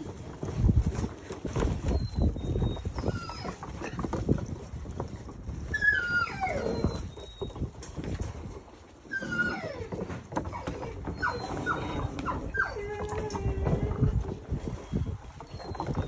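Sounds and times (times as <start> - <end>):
puppies whining: 0.1 - 16.0
puppies yipping: 1.5 - 4.2, 5.5 - 7.8, 9.0 - 13.2, 15.3 - 16.0.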